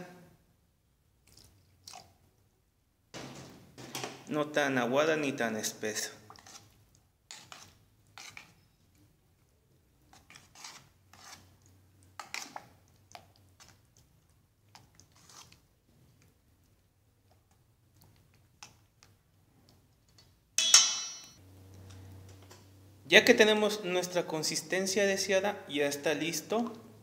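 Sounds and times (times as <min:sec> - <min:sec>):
metal spoon scraping bowl: 0:06.3 - 0:08.8, 0:10.1 - 0:12.7
sharp metal clank: 0:20.6 - 0:21.4.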